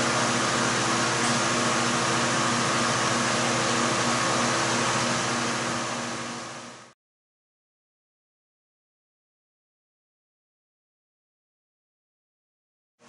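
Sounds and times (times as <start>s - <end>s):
mechanical whir with hum: 0.0s - 7.0s.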